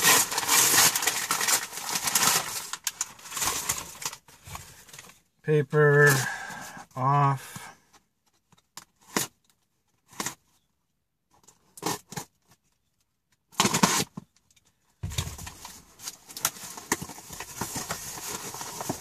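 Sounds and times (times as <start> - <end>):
packing paper crinkling: 0.0 - 5.2, 15.0 - 19.0
paper and cardboard rustles: 0.0 - 5.2, 15.0 - 19.0.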